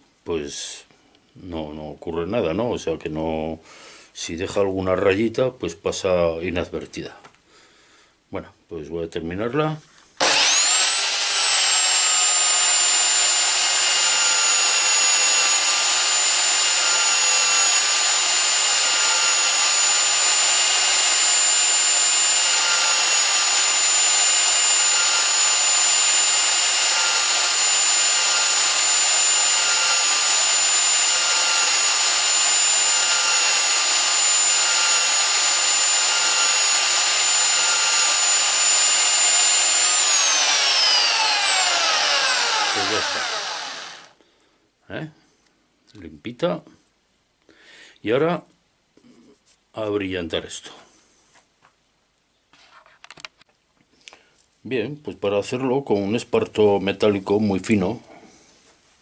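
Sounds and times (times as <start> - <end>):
electric drill whining: 10.2 - 44.2.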